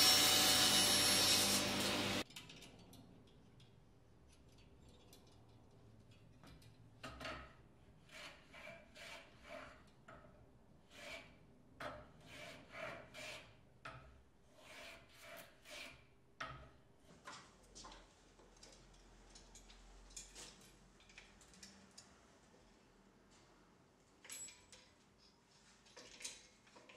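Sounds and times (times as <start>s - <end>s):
hand plane shaving wood: 8.1s - 9.8s, 10.9s - 11.2s, 12.3s - 13.4s, 14.6s - 16.0s.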